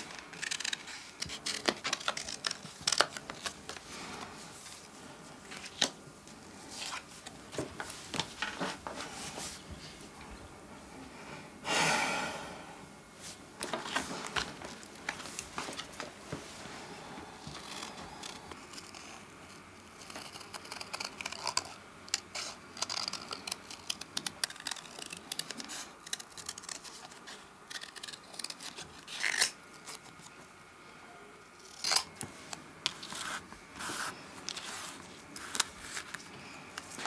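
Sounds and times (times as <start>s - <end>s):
scissors snipping paper: 20.0s - 30.1s
paper being handled: 32.4s - 37.0s.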